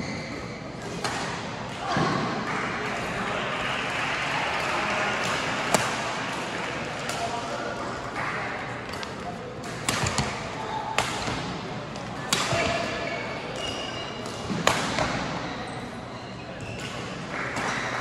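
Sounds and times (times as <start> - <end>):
court shoes squeaking: 0.0 - 1.1, 11.9 - 18.0
murmur of voices in hall: 0.0 - 18.0
racket striking shuttlecock: 8.9 - 12.7.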